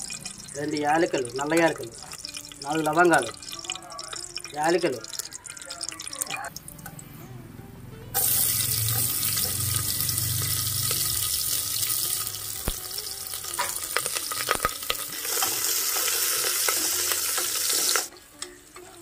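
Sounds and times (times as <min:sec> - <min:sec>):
onions sizzling in hot oil: 0:08.2 - 0:19.0.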